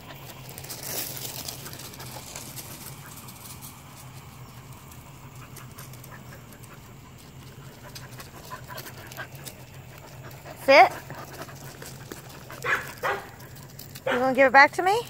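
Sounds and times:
footsteps on gravel: 0:00.0 - 0:14.6
faint low hum: 0:00.0 - 0:15.0.

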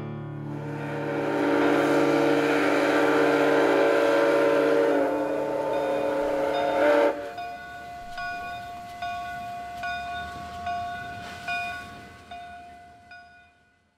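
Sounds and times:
locomotive steam whistle: 0:00.4 - 0:08.2
steam hissing: 0:00.5 - 0:08.5.

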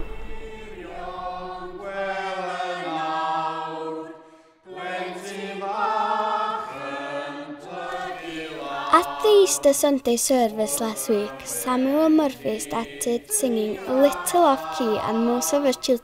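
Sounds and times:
congregation singing a hymn: 0:00.0 - 0:16.0.

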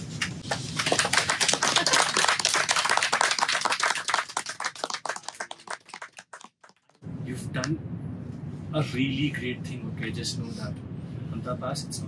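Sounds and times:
people clapping: 0:00.2 - 0:07.0.

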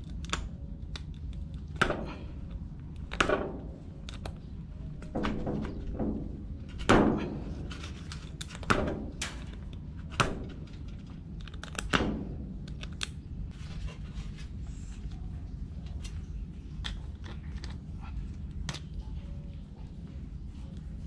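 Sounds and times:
barnacles cracking and snapping: 0:00.0 - 0:04.4, 0:07.0 - 0:13.2
steady low hum: 0:00.0 - 0:21.0.

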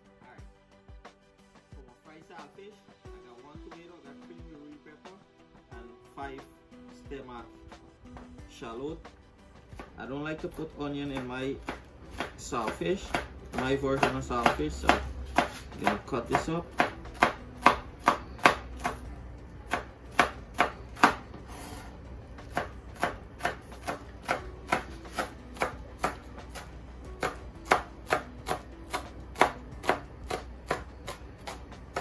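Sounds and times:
knife chopping on plastic board: 0:09.7 - 0:19.1, 0:19.7 - 0:32.0.

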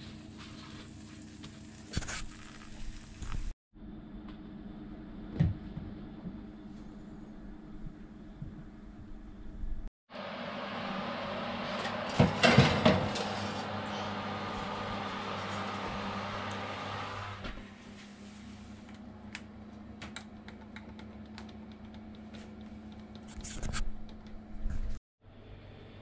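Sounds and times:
fan oven whirring: 0:04.1 - 0:23.4
oven door shutting: 0:11.6 - 0:14.3
baking tray sliding onto oven rack: 0:11.6 - 0:14.4.

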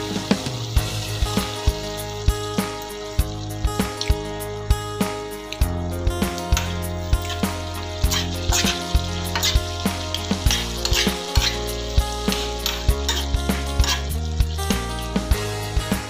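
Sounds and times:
background music: 0:00.0 - 0:16.0
food sizzling in a pan: 0:00.0 - 0:16.0
metal spoon scraping a pan: 0:06.6 - 0:14.2.

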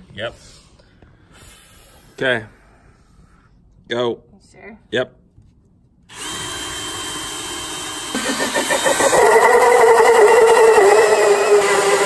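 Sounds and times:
cordless drill with hole saw: 0:06.1 - 0:12.0
saw cutting into wood board: 0:06.1 - 0:12.0.

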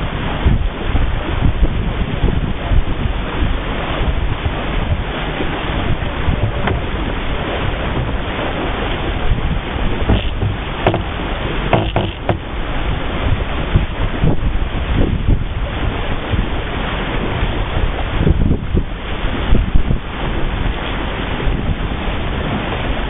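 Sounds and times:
water rushing along hull: 0:00.0 - 0:23.0
wind buffeting microphone: 0:00.0 - 0:23.0
short knocks: 0:06.4 - 0:07.0, 0:10.0 - 0:12.5.

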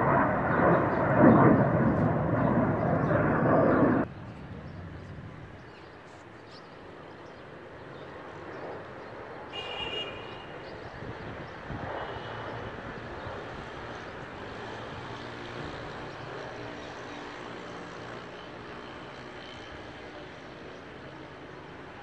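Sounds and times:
distant jet engine rumbling: 0:00.0 - 0:09.5.

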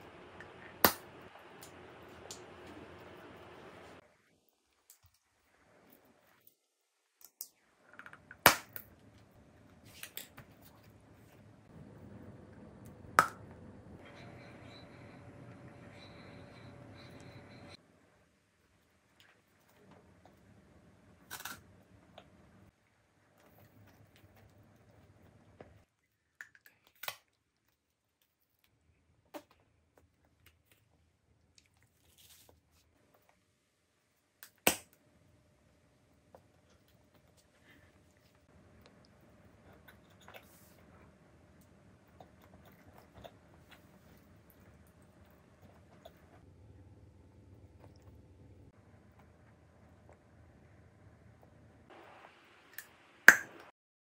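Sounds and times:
chewing crackles and mouth clicks: 0:42.0 - 0:46.4.

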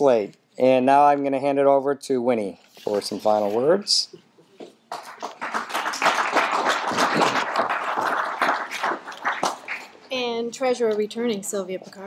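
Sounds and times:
audience applauding: 0:04.9 - 0:10.0.

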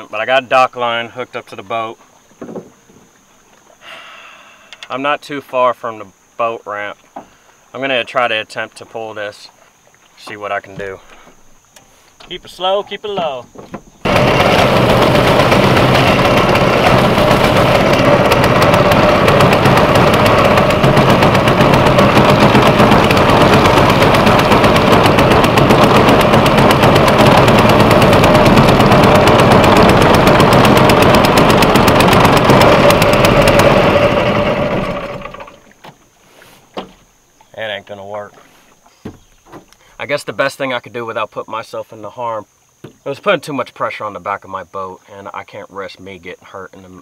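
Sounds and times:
boat motor running: 0:10.2 - 0:35.8.

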